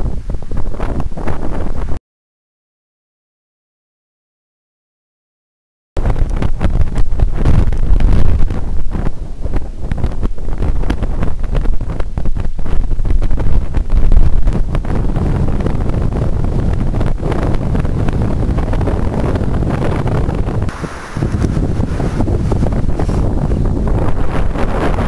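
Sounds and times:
wind buffeting microphone: 0.0s - 2.0s, 6.0s - 25.0s.

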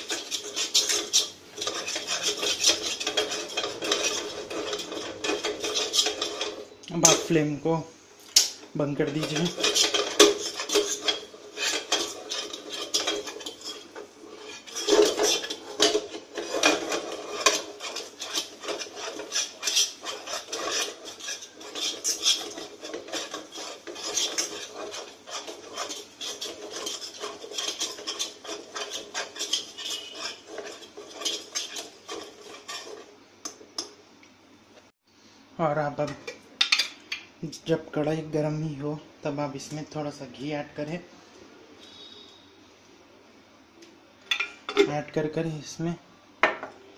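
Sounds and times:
utensil scraping a pan: 0.0s - 7.8s, 8.4s - 34.0s.

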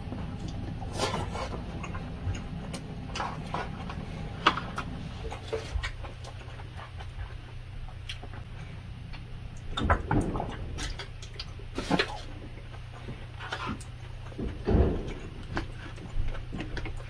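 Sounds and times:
chewing rice: 0.0s - 17.0s
low steady hum: 0.0s - 17.0s.

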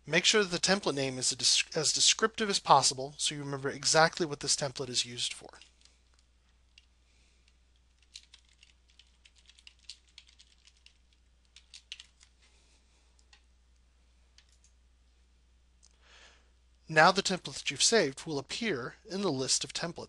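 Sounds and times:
typing on computer keyboard: 7.9s - 12.3s.

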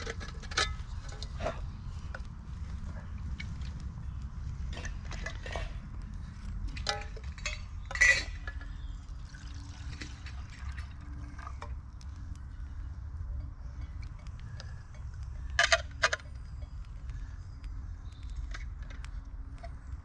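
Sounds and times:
metal clinks and knocks: 0.0s - 2.2s, 6.6s - 8.8s, 13.4s - 16.8s
low rumble: 0.0s - 20.0s
water pouring into metal pot: 9.2s - 11.6s.

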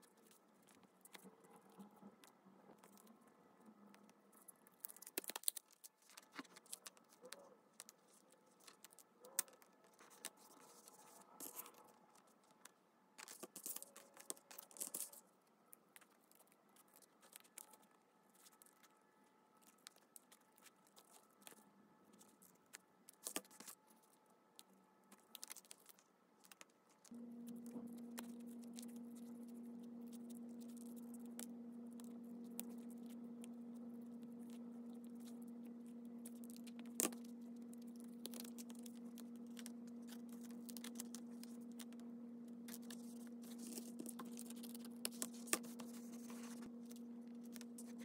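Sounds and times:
paper rustling: 42.6s - 48.0s.

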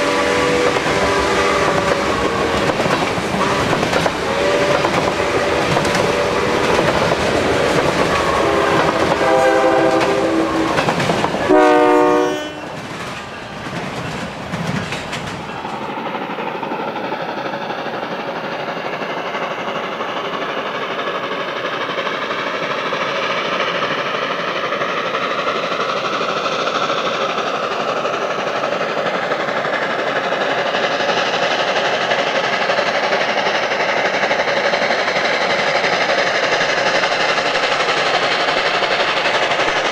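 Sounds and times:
steam locomotive whistle: 0.0s - 2.8s, 3.4s - 6.8s, 8.0s - 12.8s
distant steam locomotive working: 0.0s - 39.9s
train wheels clacking on track: 0.0s - 39.9s.

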